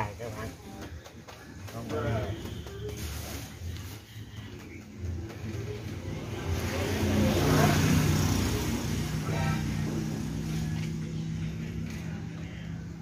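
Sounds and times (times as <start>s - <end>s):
motor vehicle passing: 4.9s - 13.0s.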